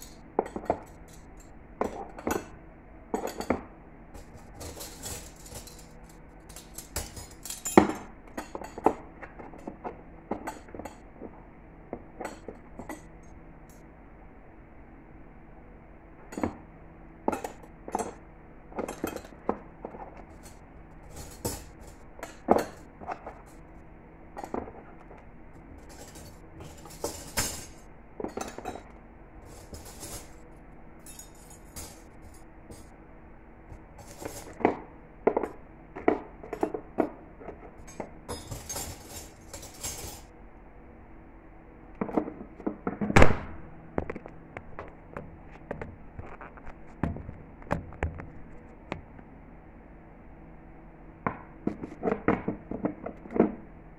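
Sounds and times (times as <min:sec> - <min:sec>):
cutlery clinking: 0:04.2 - 0:09.0, 0:31.0 - 0:32.1.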